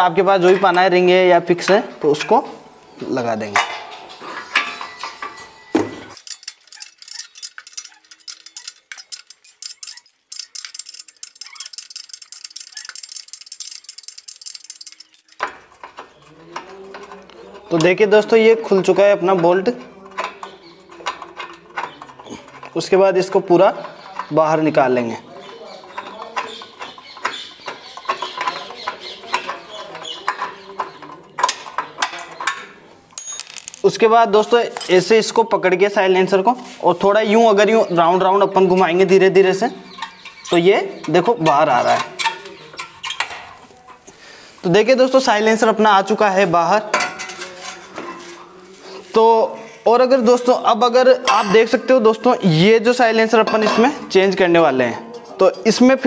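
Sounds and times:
sharp metallic clinks: 0:06.2 - 0:15.4, 0:33.2 - 0:34.0
spanner clicking on metal bolt: 0:06.2 - 0:16.0.

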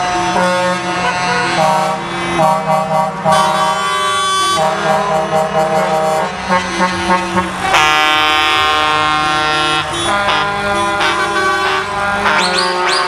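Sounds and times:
truck air horns: 0:00.0 - 0:13.0
trucks driving past: 0:00.0 - 0:13.0.

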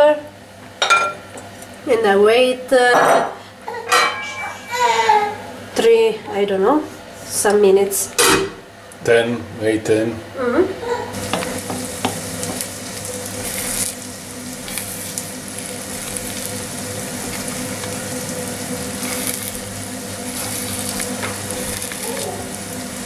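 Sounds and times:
food sizzling in a pan: 0:10.8 - 0:23.0
wooden spoon scraping a pan: 0:20.2 - 0:22.0.

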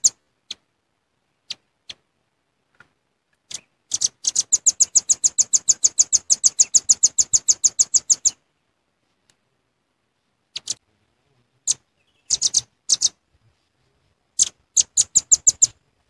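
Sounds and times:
bird chip calls: 0:00.0 - 0:00.6, 0:03.5 - 0:08.4, 0:10.5 - 0:10.8, 0:11.6 - 0:13.2, 0:14.4 - 0:15.8.

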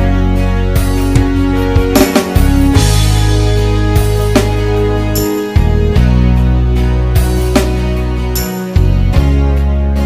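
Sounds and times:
held bass and chords: 0:00.0 - 0:10.0
drum hits: 0:01.0 - 0:03.2.

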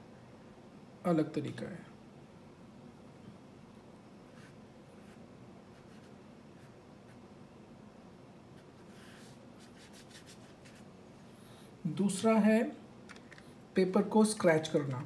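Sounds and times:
low room hum: 0:00.0 - 0:15.0
brush strokes on paper: 0:08.6 - 0:10.9.

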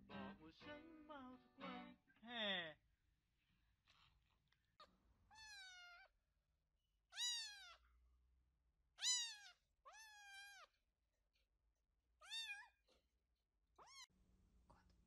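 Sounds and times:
kitten meowing: 0:05.3 - 0:06.1, 0:07.1 - 0:07.8, 0:09.0 - 0:10.7, 0:12.2 - 0:12.8, 0:13.8 - 0:14.1.

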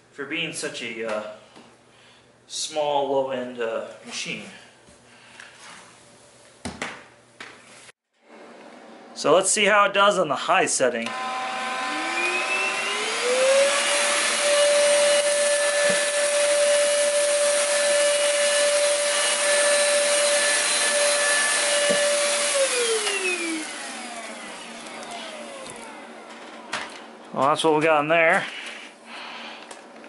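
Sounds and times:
stick vacuum motor whining: 0:11.0 - 0:27.0.

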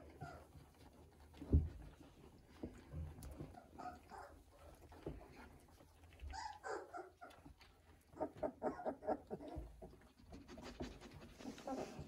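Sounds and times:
puppies squeaking and whining: 0:00.1 - 0:01.5, 0:03.2 - 0:10.7, 0:11.3 - 0:12.0
puppies yelping: 0:03.6 - 0:04.7, 0:06.2 - 0:10.0.

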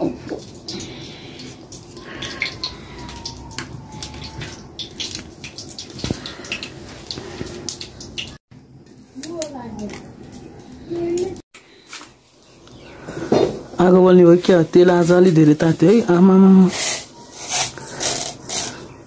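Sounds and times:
hot oil hissing: 0:00.0 - 0:08.4, 0:13.3 - 0:18.9
wood fire crackling: 0:00.0 - 0:18.6.

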